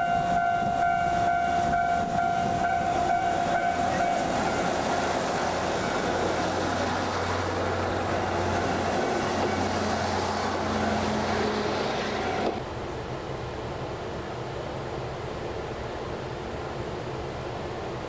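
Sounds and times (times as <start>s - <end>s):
level-crossing alarm ringing: 0.0s - 9.7s
train wheels rumbling: 0.0s - 12.8s
railcar engines humming: 0.0s - 18.0s.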